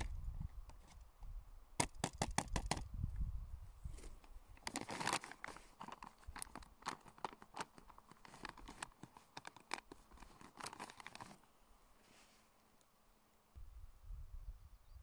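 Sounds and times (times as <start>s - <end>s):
plastic pouch crinkling: 4.6s - 11.4s.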